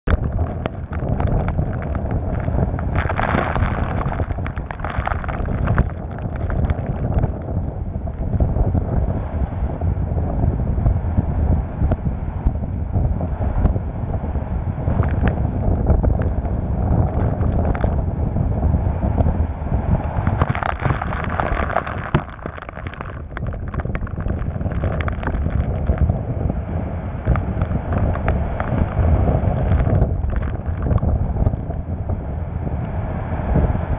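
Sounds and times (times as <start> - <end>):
wind buffeting microphone: 0.0 - 33.9
water rushing against boat: 20.0 - 32.2.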